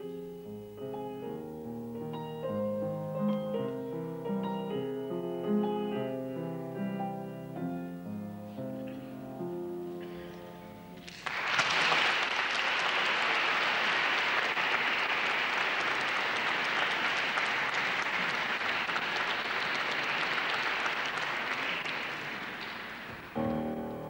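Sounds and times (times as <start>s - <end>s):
instrumental music: 0.0s - 11.1s, 23.1s - 24.0s
audience applauding: 11.0s - 23.6s.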